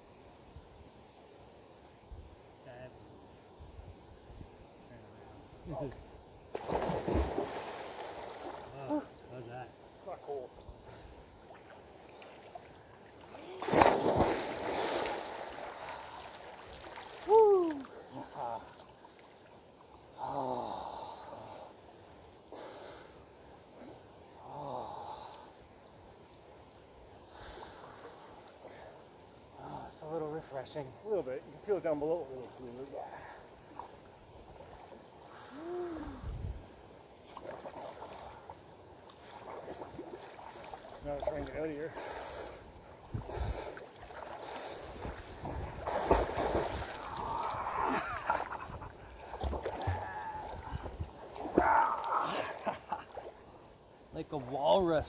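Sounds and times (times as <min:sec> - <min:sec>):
water splashing and sloshing: 0:06.5 - 0:09.4, 0:10.9 - 0:20.1, 0:37.1 - 0:55.0
man groaning: 0:47.2 - 0:48.2.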